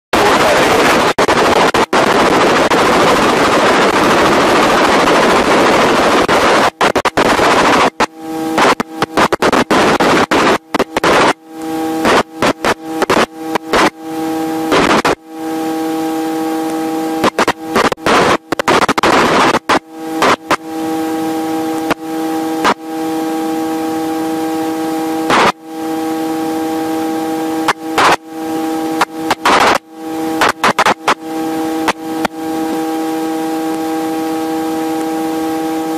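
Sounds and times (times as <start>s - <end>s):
helicopter rushing noise: 0.2s - 15.3s
helicopter whine: 0.2s - 35.9s.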